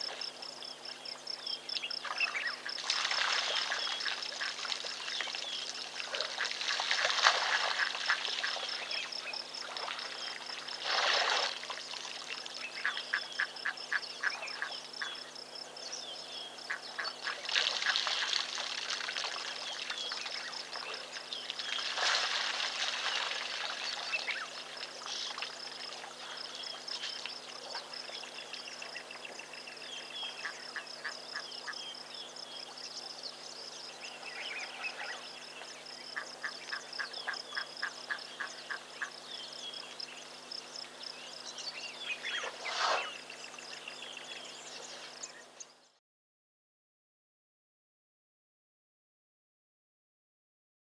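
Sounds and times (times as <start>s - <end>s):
water splashing from elephant trunk: 2.7s - 12.4s, 17.2s - 26.2s.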